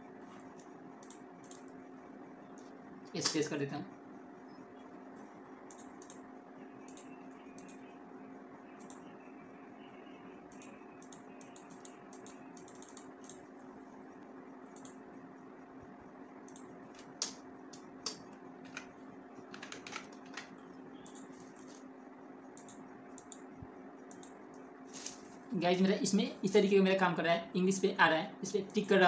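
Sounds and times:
steady low hum: 0:00.0 - 0:29.0
computer keyboard clicks: 0:00.6 - 0:01.8, 0:05.7 - 0:06.2, 0:06.8 - 0:07.9, 0:10.5 - 0:13.5, 0:14.7 - 0:15.0, 0:16.5 - 0:21.3, 0:22.6 - 0:23.5.

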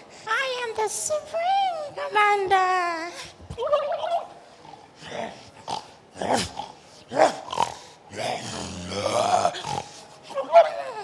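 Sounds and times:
man growling: 0:07.2 - 0:10.0.

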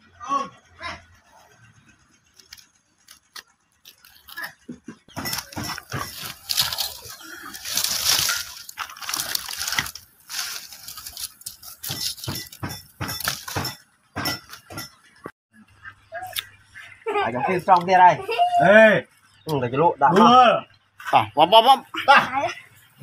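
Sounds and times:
wood fire crackling: 0:02.1 - 0:14.9
dry sticks rustling and breaking: 0:02.3 - 0:13.8.

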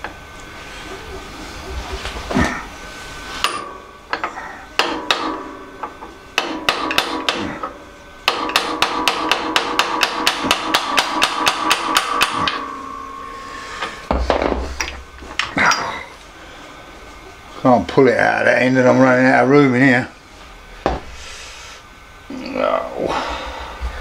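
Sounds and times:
hammer blows on metal: 0:03.4 - 0:15.9.

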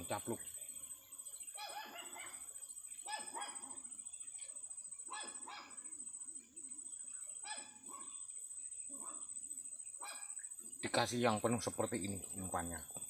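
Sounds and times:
dog barking: 0:01.6 - 0:02.4, 0:03.1 - 0:03.8, 0:05.1 - 0:05.8, 0:10.0 - 0:10.4.

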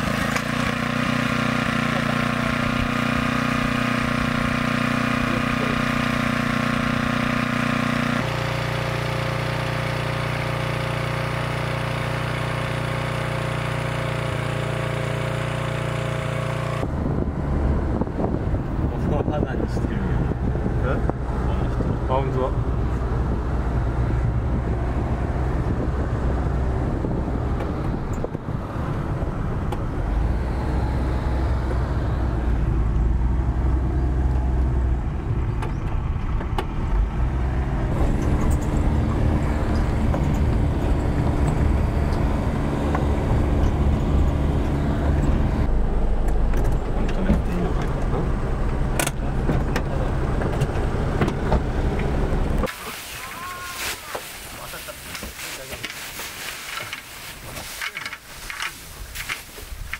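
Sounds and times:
engine running at low revs: 0:00.0 - 0:53.4.

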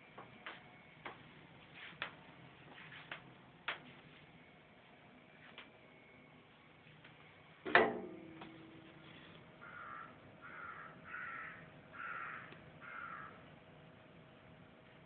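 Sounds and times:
crow cawing: 0:09.6 - 0:13.4.

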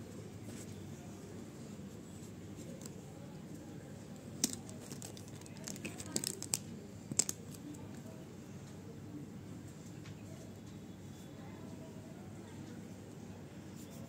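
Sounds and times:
low background noise: 0:00.0 - 0:14.0
paper rustling: 0:04.4 - 0:07.6.

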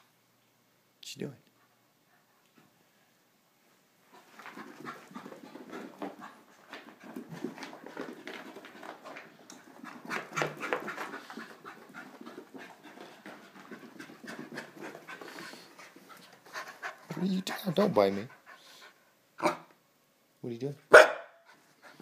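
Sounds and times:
paws scrabbling on carpet: 0:04.0 - 0:18.4
puppy panting: 0:04.1 - 0:19.1, 0:21.4 - 0:22.0.

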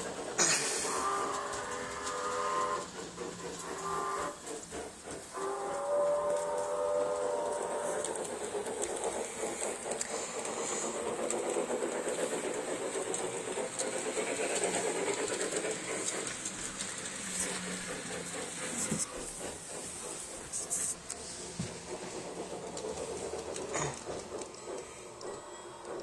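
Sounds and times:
model locomotive whirring and rattling: 0:00.0 - 0:26.0.

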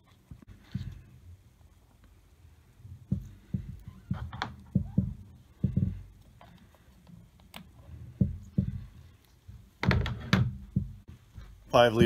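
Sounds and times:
dull low knocks: 0:03.0 - 0:06.2, 0:08.1 - 0:12.0.

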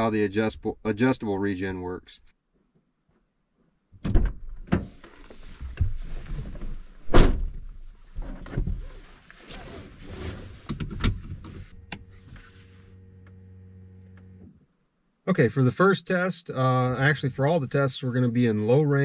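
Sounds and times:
knocks and thuds in car: 0:04.0 - 0:04.9, 0:05.7 - 0:08.8
rustling: 0:04.9 - 0:07.1, 0:07.8 - 0:13.0
faint steady hum: 0:10.7 - 0:19.0.

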